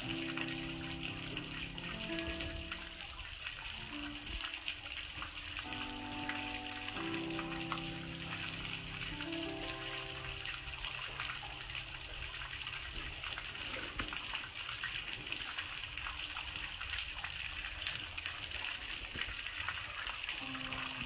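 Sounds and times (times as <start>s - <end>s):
hose water rushing: 0.0s - 15.4s
water dripping: 0.0s - 21.0s
water splashing on concrete: 0.0s - 21.0s.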